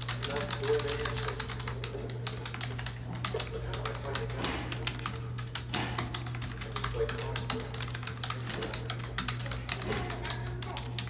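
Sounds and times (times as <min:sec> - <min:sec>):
faint television voices: 0:00.0 - 0:11.0
keyboard typing: 0:00.0 - 0:11.0
steady low hum: 0:00.0 - 0:11.0.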